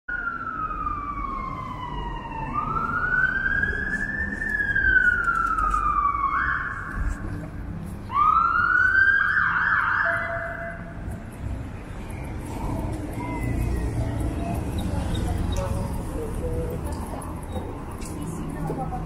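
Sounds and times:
emergency siren wailing: 0.1 - 11.0
street traffic rumble: 0.1 - 19.0.

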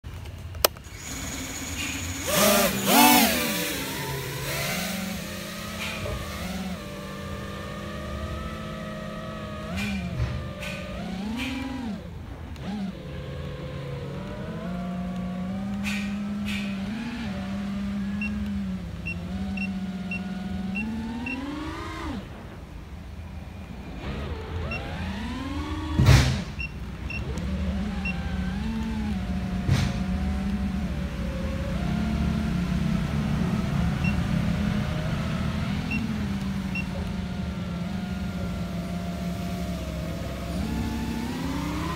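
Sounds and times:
drone motors whining: 0.0 - 41.9
sharp click: 15.1 - 17.0.

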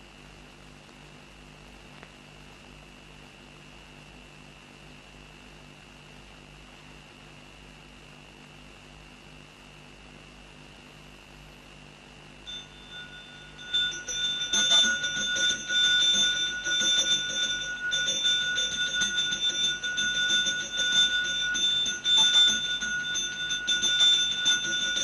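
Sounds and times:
bell ringing rapidly: 12.5 - 25.0.

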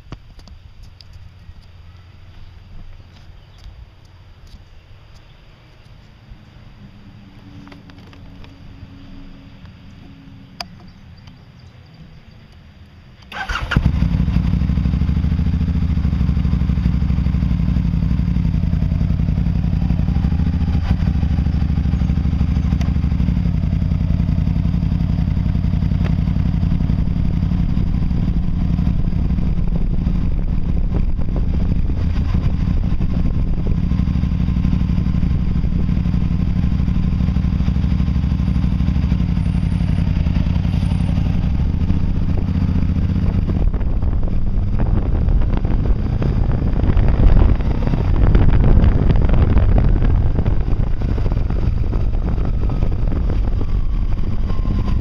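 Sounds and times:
vehicle engine starting and running: 12.4 - 55.0.

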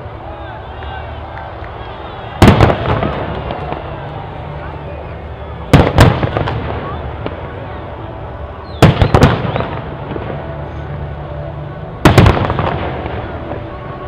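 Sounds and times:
fireworks bangs with echo: 2.3 - 4.2, 5.7 - 7.8, 8.6 - 10.9, 12.0 - 14.0.

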